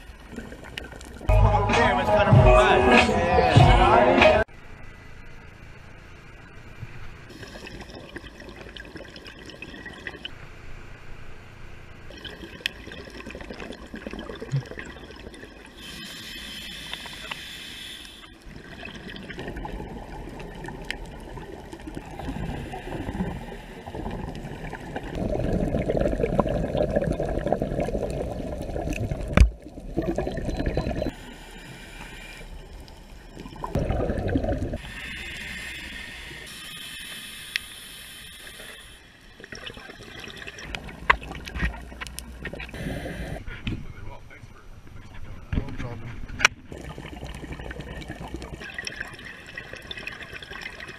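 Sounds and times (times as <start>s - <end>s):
muffled underwater bubbling: 7.3s - 10.3s, 12.1s - 37.4s, 38.4s - 43.6s, 46.3s - 50.9s.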